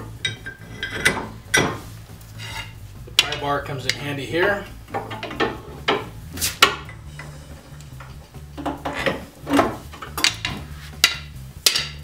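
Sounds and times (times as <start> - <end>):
metal scraping: 0.0 - 12.0.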